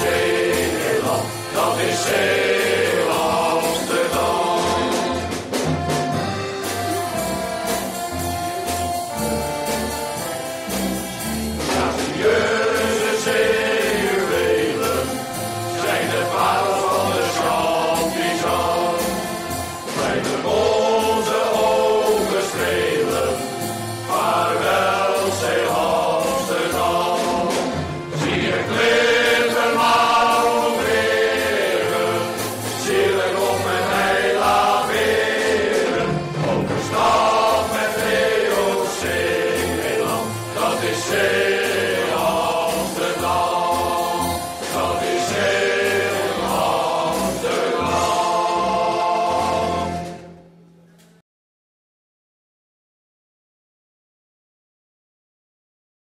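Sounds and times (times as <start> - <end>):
choir singing in chorus: 0.0 - 50.7.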